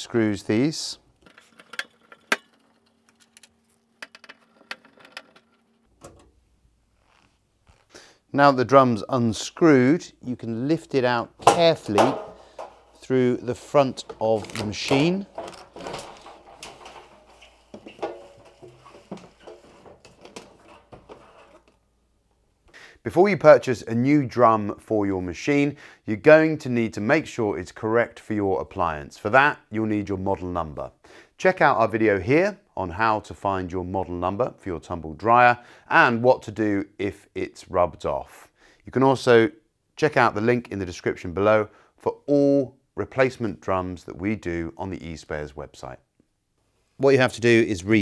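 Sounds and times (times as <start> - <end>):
metal drum clanking and rattling: 11.4 - 21.7.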